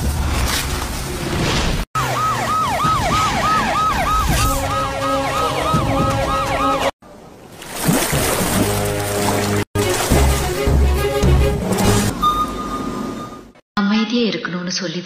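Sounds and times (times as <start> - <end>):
swooping siren-like tone: 2.0 - 7.0.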